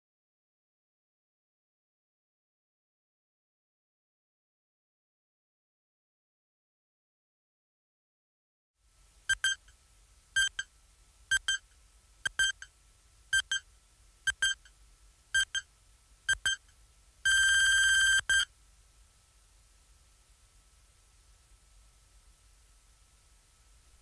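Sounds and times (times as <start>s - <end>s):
faint steady tone: 8.8s - 24.0s
timer beeps: 9.3s - 9.6s, 10.4s - 10.7s, 11.3s - 11.6s, 12.3s - 12.7s, 13.4s - 13.6s, 14.3s - 14.7s, 15.4s - 15.7s, 16.3s - 16.6s, 17.3s - 18.5s.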